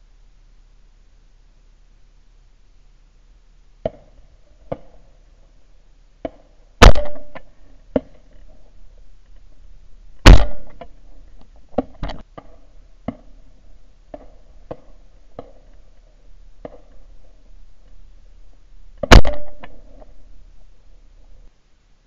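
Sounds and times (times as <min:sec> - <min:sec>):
loud shotgun shots: 0:06.8 - 0:07.5, 0:10.2 - 0:10.9, 0:19.0 - 0:20.1
faint sharp cracks and knocks: 0:10.2 - 0:13.3, 0:19.0 - 0:20.2.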